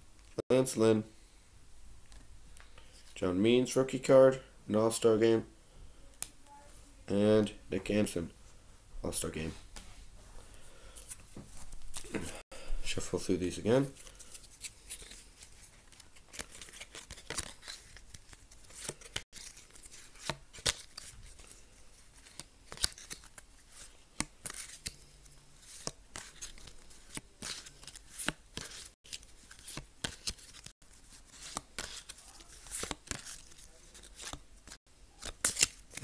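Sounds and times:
trading cards shuffled by hand: 0:14.0 - 0:36.0
foil wrappers crinkling: 0:14.1 - 0:36.0.

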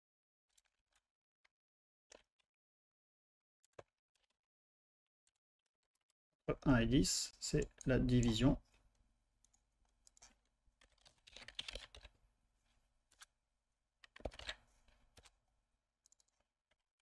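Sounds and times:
keyboard typing: 0:07.5 - 0:08.6, 0:09.4 - 0:12.1, 0:14.0 - 0:14.6, 0:16.0 - 0:16.4.

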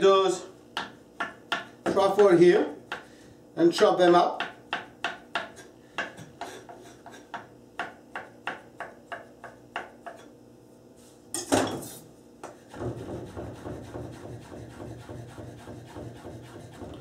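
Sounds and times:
knife chopping on wooden board: 0:00.8 - 0:03.1, 0:04.4 - 0:10.3, 0:12.4 - 0:17.0
loud knock: 0:12.8 - 0:14.1.

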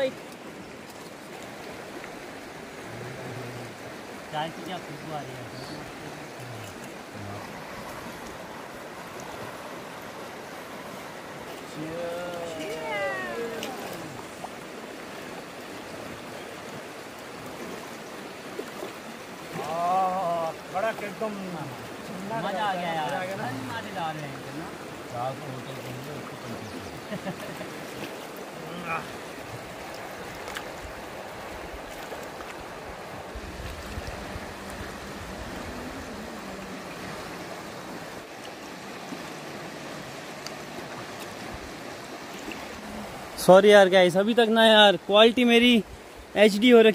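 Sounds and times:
river flowing over stones: 0:00.0 - 0:46.9
wind rumble on microphone: 0:33.2 - 0:37.2.

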